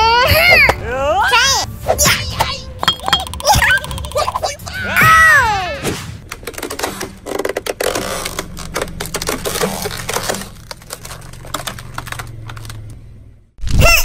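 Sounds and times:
plastic bricks clicking and cracking: 6.2s - 13.0s
car engine humming: 7.2s - 13.6s.

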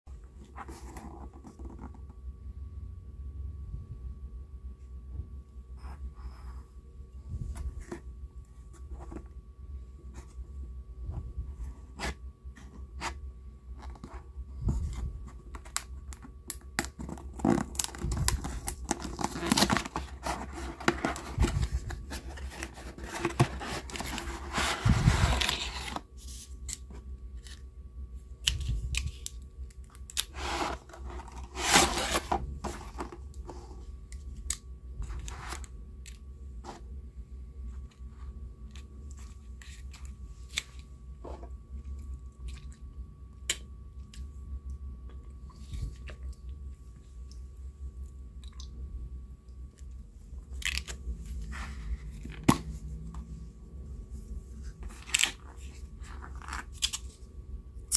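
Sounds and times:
packaging crinkling: 15.7s - 26.1s
cardboard tearing and scraping: 16.8s - 26.0s, 30.2s - 33.2s.

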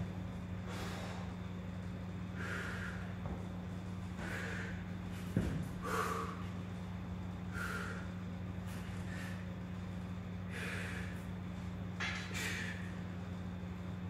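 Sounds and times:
steady low hum: 0.0s - 14.0s
man breathing sharply: 0.6s - 1.5s, 2.3s - 3.3s, 4.2s - 4.9s, 5.8s - 6.5s, 7.5s - 8.2s, 10.4s - 11.3s.

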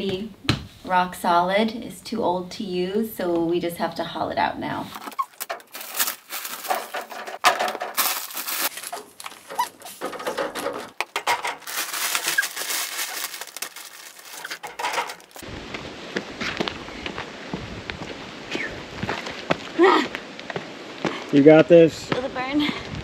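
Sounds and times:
plastic sacks crinkling and scraping: 4.9s - 15.4s
footsteps on dirt path: 15.4s - 21.3s, 22.0s - 23.0s.

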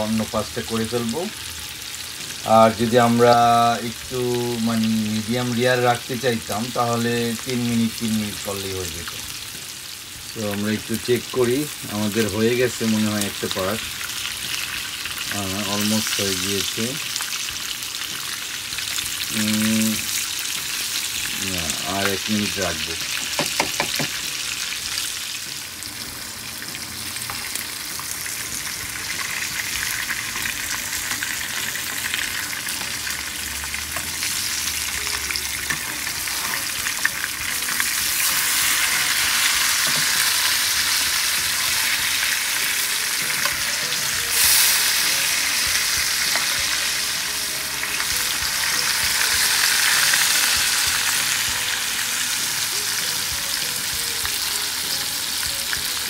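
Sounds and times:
fish fillets sizzling in oil: 0.0s - 56.0s.

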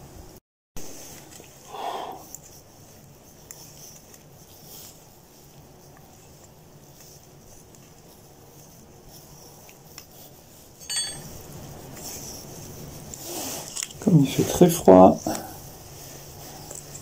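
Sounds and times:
rustling: 0.8s - 17.0s
plate clinking: 10.8s - 11.4s.

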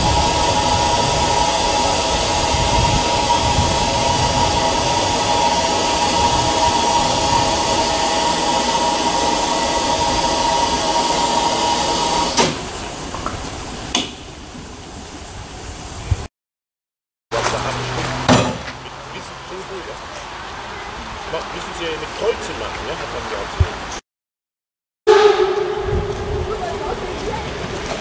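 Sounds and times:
steam locomotive hissing steam: 0.0s - 14.0s.

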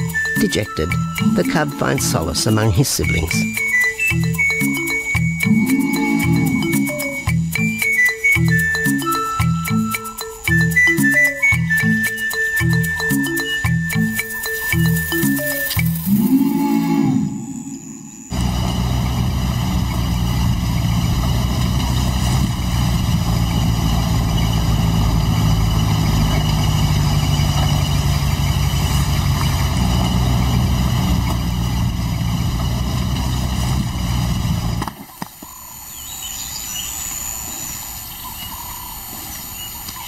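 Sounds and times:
vehicle engine droning: 0.0s - 7.7s, 15.9s - 35.0s.

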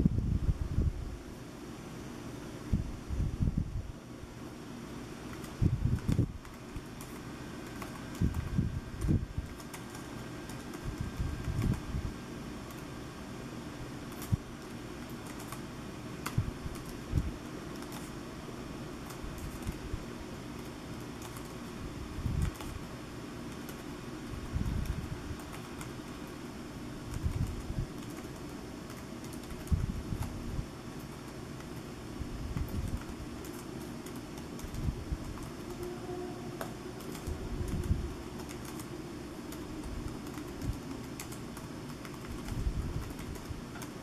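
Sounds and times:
fan-like hum: 0.0s - 44.0s
keyboard keys clicking: 5.2s - 11.9s, 14.1s - 18.2s, 19.0s - 19.9s, 20.5s - 21.7s, 22.3s - 22.8s, 23.5s - 23.9s, 24.5s - 26.4s, 27.1s - 30.4s, 32.5s - 35.9s, 36.6s - 44.0s.

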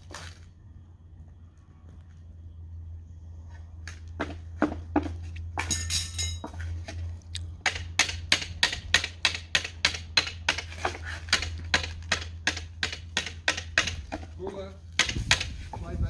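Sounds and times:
hammer striking hot iron tyre: 7.6s - 15.6s.

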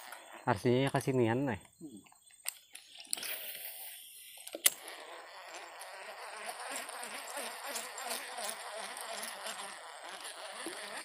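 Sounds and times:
fishing reel whirring: 2.9s - 11.0s.

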